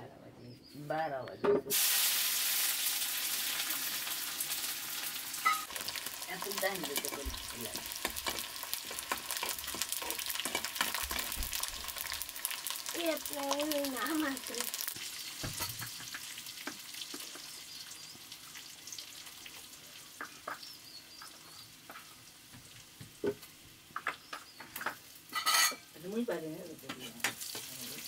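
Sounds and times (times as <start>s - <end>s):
vegetables sizzling in wok: 1.7s - 28.0s
stirring in wok: 5.4s - 17.5s.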